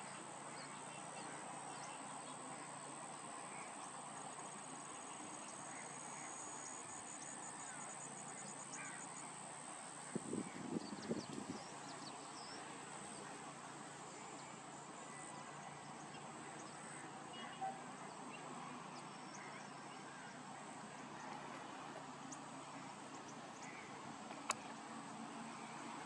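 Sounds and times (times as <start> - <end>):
sharp click: 24.4 - 24.7.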